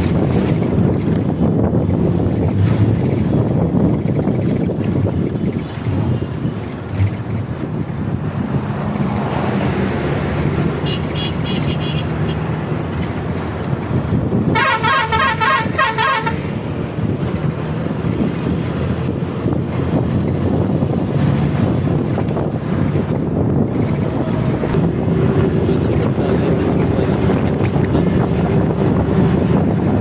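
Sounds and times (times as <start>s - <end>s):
bus engine and road drone: 0.0s - 30.0s
horn playing changing notes: 14.5s - 16.5s.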